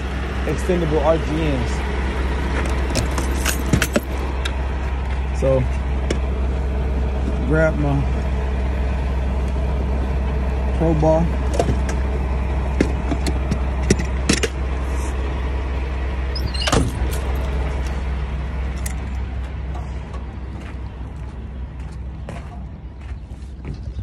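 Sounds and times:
diesel engine idling: 0.0s - 24.0s
footsteps on gravel: 19.4s - 24.0s.

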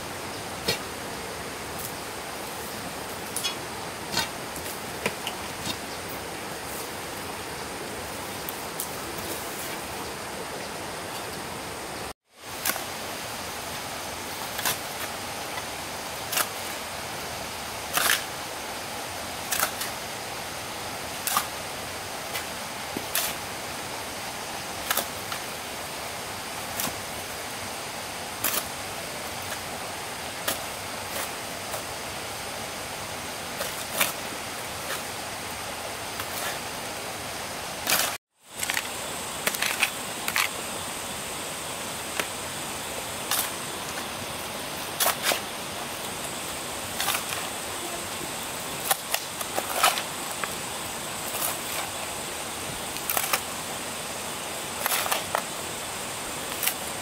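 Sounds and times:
steady hiss: 0.0s - 57.0s.

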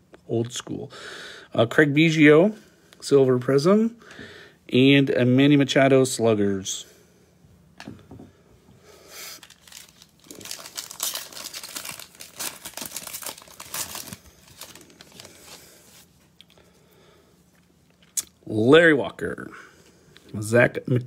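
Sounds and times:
plastic wrapper tearing and crinkling: 9.3s - 16.0s.

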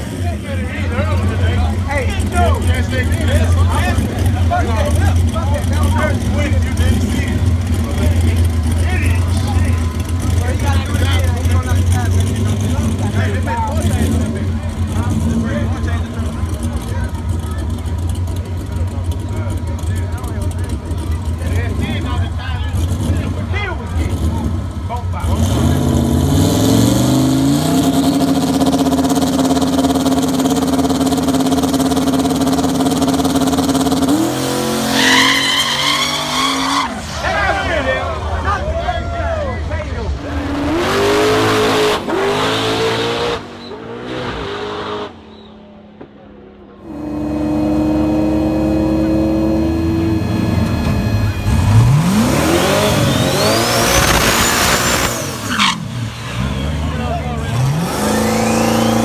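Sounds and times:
drag car engine revving: 0.0s - 59.0s
high-pitched whine: 46.9s - 55.5s
turbo whistle: 49.5s - 55.0s.

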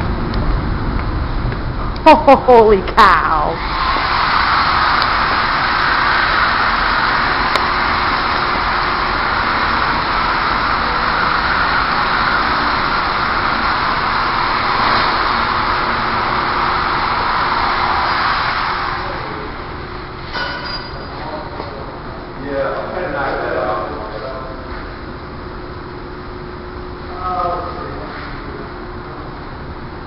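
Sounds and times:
loud steady rushing noise: 0.0s - 20.5s.

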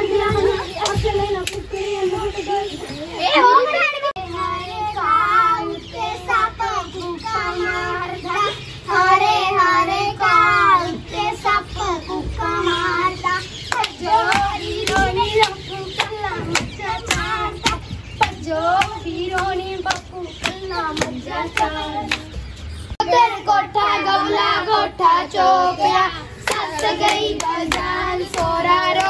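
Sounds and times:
high voice singing: 0.0s - 29.0s
hand claps: 13.7s - 22.4s, 26.4s - 29.0s.

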